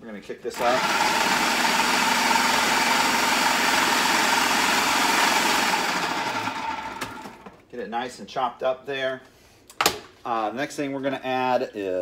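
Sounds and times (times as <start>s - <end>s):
food processor whining: 0.5s - 7.6s.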